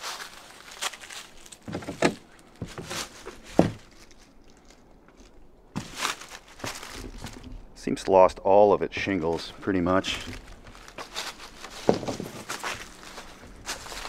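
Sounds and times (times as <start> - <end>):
footsteps on debris and boards: 0.0 - 8.2, 8.8 - 14.0.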